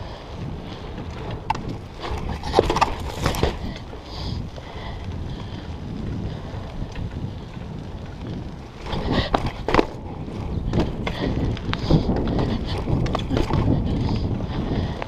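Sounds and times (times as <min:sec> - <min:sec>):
bike tyre and wind rumble: 0:00.0 - 0:15.0
bike knocks and rattles on pavers: 0:01.2 - 0:03.8, 0:08.3 - 0:15.0.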